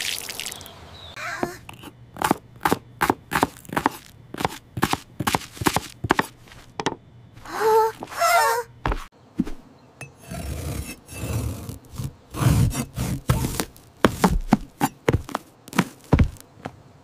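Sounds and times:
knife chopping on board: 0:01.4 - 0:06.4, 0:11.9 - 0:16.4
knife sawing through vegetables: 0:01.7 - 0:06.6, 0:10.2 - 0:16.0.

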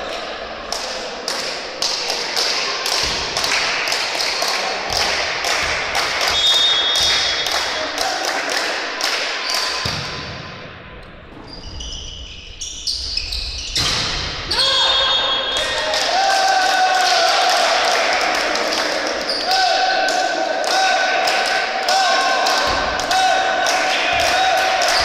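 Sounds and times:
hands clapping in a hall: 0:00.0 - 0:09.8, 0:15.6 - 0:25.0.

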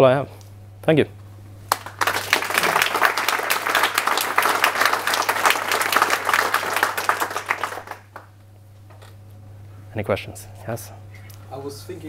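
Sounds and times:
audience applauding: 0:01.7 - 0:08.3.

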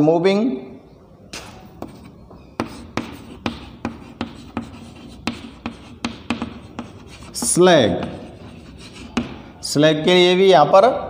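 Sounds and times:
chalk tapping and scratching: 0:01.4 - 0:09.6.

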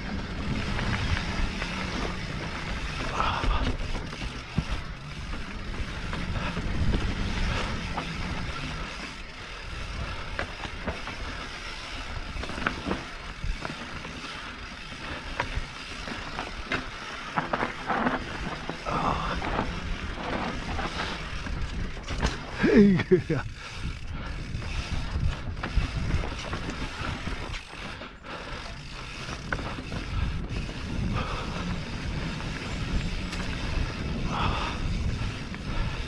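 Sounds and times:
tyres rolling over dirt: 0:00.0 - 0:28.0
bike rattling and clattering: 0:00.0 - 0:36.0.

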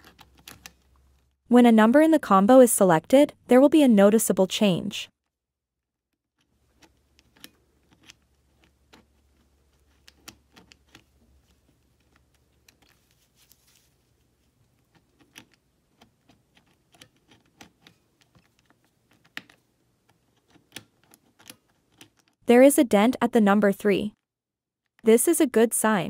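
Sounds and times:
combination lock wheel clicks: 0:06.4 - 0:11.2, 0:14.8 - 0:22.4.

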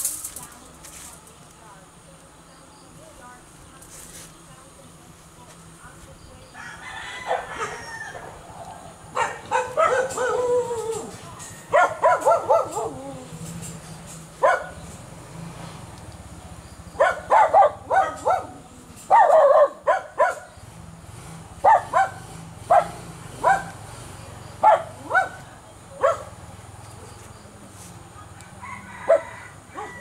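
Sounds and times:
dog barking: 0:09.1 - 0:10.7, 0:11.7 - 0:13.0, 0:14.4 - 0:14.8, 0:17.0 - 0:20.5, 0:21.6 - 0:23.8, 0:24.6 - 0:25.4, 0:26.0 - 0:26.4.

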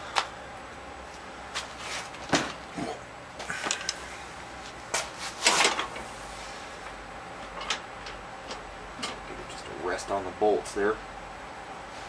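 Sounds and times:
handling knocks and clunks: 0:02.1 - 0:02.9.

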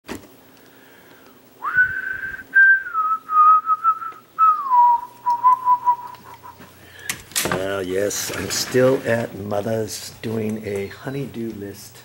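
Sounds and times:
person whistling a slow tune: 0:01.6 - 0:06.7.

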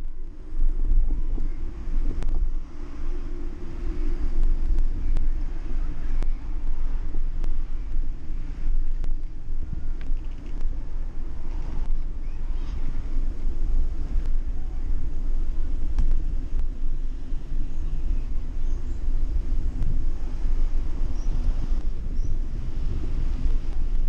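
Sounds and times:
wind buffeting microphone: 0:00.0 - 0:24.0
sharp clicks and rattles: 0:10.0 - 0:10.7.

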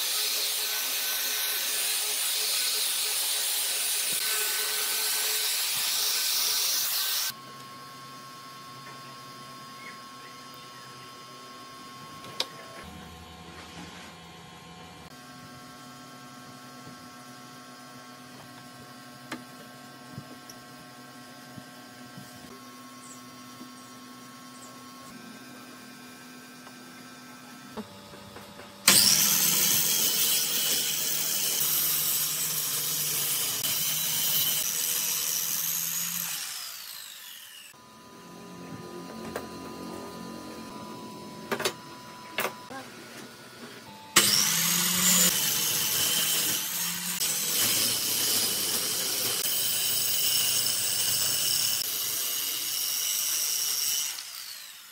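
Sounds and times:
power tool cutting wood: 0:00.0 - 0:14.0, 0:28.8 - 0:54.9.

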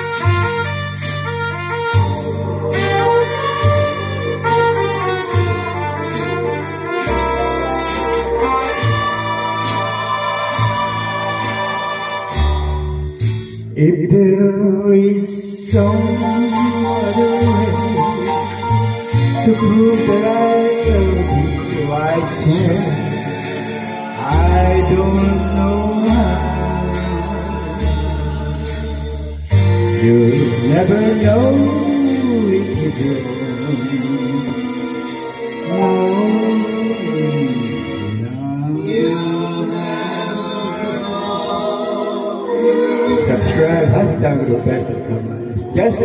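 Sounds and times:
backing music with deep bass: 0:00.0 - 0:46.0
man singing into microphone: 0:13.7 - 0:18.6, 0:19.4 - 0:28.9, 0:29.9 - 0:34.6, 0:35.7 - 0:46.0.

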